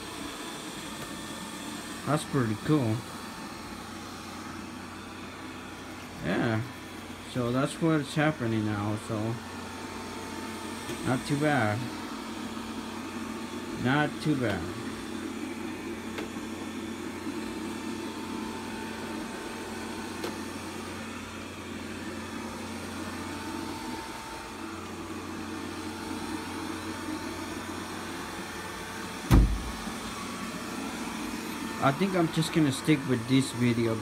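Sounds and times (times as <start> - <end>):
robot vacuum motor hum: 0.0 - 34.0
dull thump: 29.3 - 29.8.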